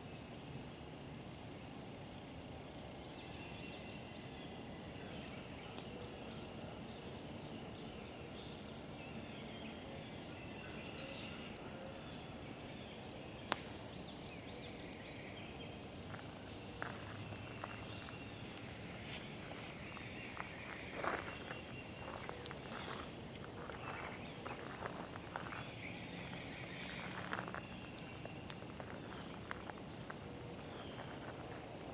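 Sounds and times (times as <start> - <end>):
steady background hiss: 0.0 - 31.9
birds chirping: 2.5 - 31.9
light ticks: 13.5 - 13.7
sharp snap: 13.5 - 13.7.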